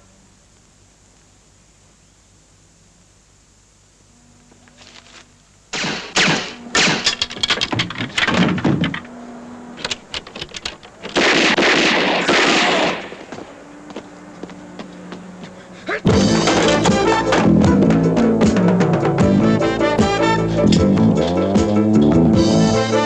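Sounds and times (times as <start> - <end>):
automatic gunfire: 5.7 - 7.2, 11.0 - 13.3.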